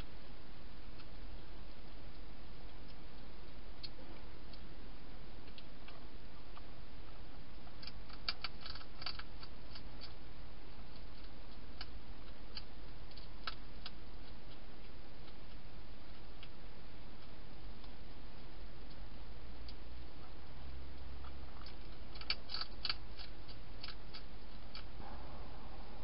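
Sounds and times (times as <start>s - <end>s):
steady hiss: 0.0s - 26.0s
hedgehog crunching dry food: 5.4s - 26.0s.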